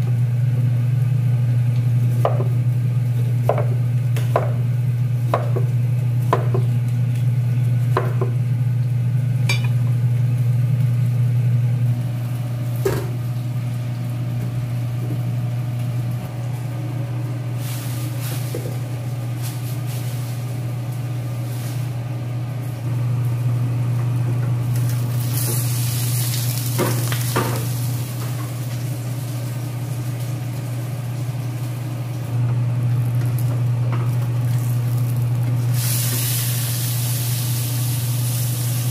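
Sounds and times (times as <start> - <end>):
range hood fan humming: 0.0 - 38.9
knife chopping on cutting board: 5.3 - 5.7
fish sizzling in oil: 17.4 - 18.6, 24.7 - 32.0, 34.3 - 38.9.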